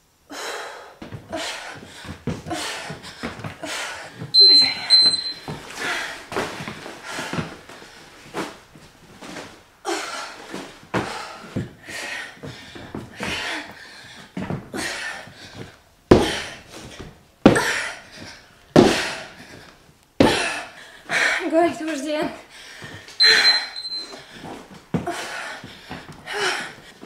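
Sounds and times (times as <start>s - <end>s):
sandbag thuds: 16.1s - 16.6s.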